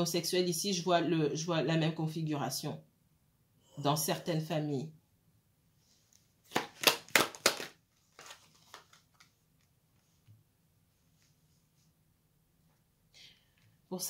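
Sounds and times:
sharp card snaps: 0:06.5 - 0:08.9
cards rustling and clicking: 0:06.5 - 0:10.3.

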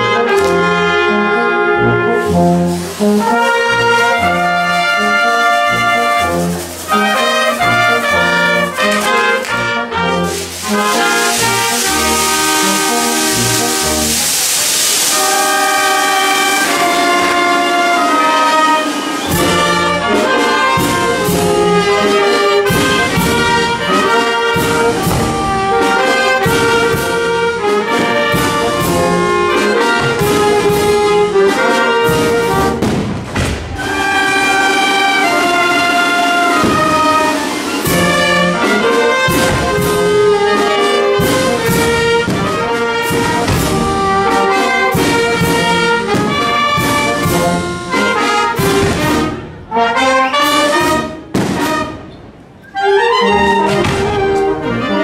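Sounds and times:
wind band playing: 0:00.0 - 0:55.0.

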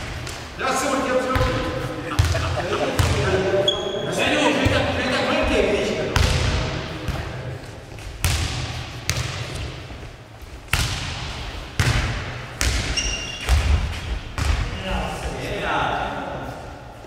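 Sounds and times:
shoe squeak: 0:03.6 - 0:04.2, 0:12.9 - 0:13.5.

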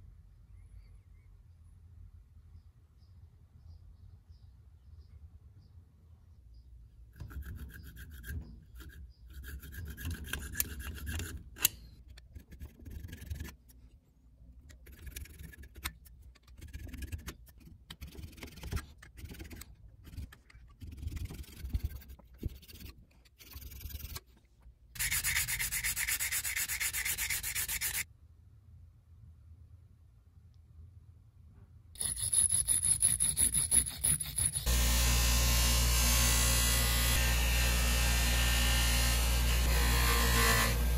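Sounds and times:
metal tool scraping metal: 0:07.2 - 0:13.7, 0:25.0 - 0:28.0, 0:32.0 - 0:34.8
sandpaper rubbing on metal: 0:16.6 - 0:24.2, 0:25.0 - 0:28.0, 0:32.0 - 0:34.7.

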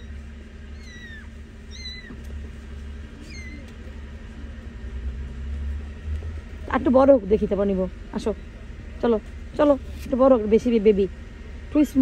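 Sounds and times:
kittens mewing: 0:00.0 - 0:04.0
steady low hum: 0:00.0 - 0:12.0.

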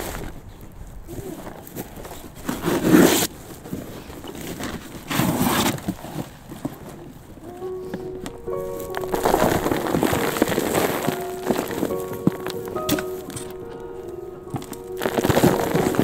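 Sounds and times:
shovel scraping soil: 0:02.5 - 0:03.4, 0:04.5 - 0:06.0.

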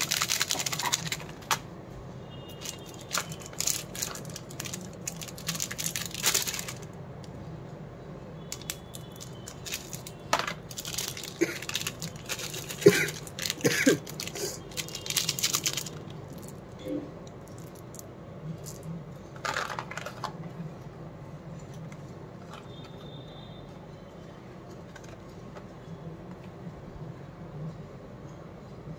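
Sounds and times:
plastic wrapper crinkling: 0:00.0 - 0:01.6, 0:02.6 - 0:06.9, 0:08.5 - 0:16.6.

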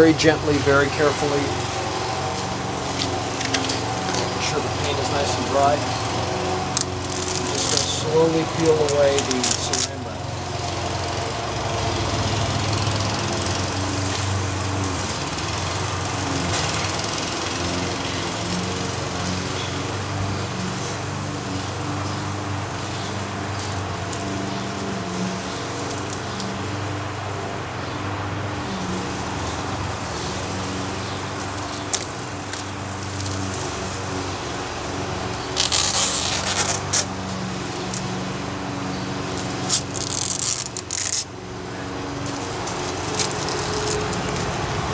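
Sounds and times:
engine running: 0:00.0 - 0:44.9
plastic wrap crinkling: 0:07.0 - 0:10.0, 0:39.4 - 0:41.3, 0:42.2 - 0:44.7.

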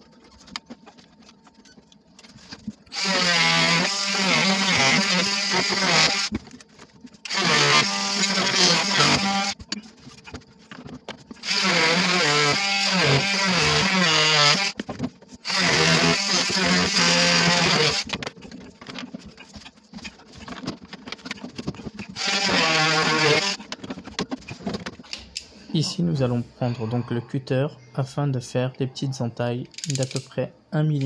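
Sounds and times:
oscillating multi-tool cutting plastic: 0:00.1 - 0:25.0
blade clicking and scraping plastic: 0:17.6 - 0:25.2.

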